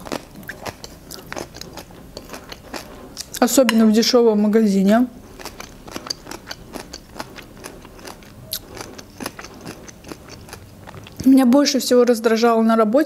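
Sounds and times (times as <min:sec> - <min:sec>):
fork scraping a plate: 0:00.0 - 0:03.9.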